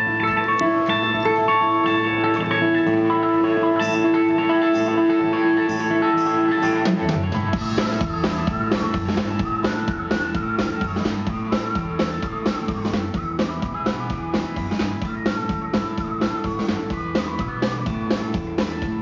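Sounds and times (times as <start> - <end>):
bass guitar: 0.0 - 19.0
electric guitar: 0.0 - 19.0
drum kit steady beat: 6.6 - 19.0.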